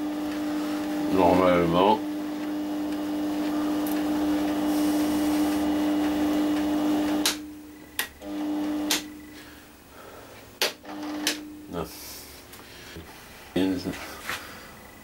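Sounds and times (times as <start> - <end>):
lathe motor hum: 0.0 - 7.4, 8.2 - 9.1.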